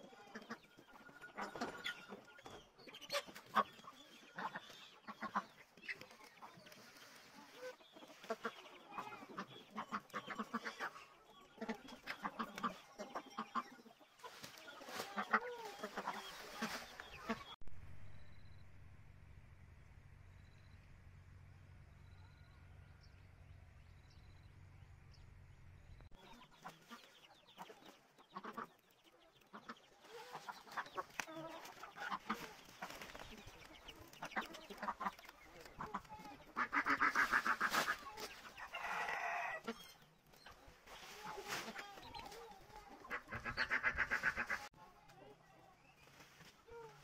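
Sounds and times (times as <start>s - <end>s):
chickens clucking: 0.0s - 17.6s, 26.0s - 47.0s
rustle of corn stalks: 14.2s - 17.6s, 29.6s - 38.9s, 40.5s - 44.7s, 45.8s - 47.0s.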